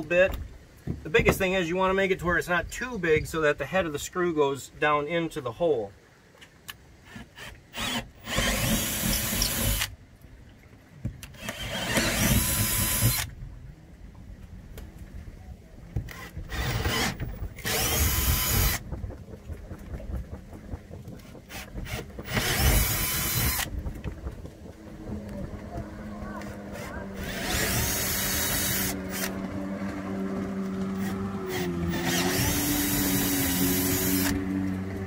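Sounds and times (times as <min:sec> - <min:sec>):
cordless drill drilling into wood: 0:07.1 - 0:09.9, 0:11.3 - 0:13.3, 0:16.1 - 0:18.8, 0:21.5 - 0:23.7, 0:26.4 - 0:29.4, 0:31.0 - 0:34.4.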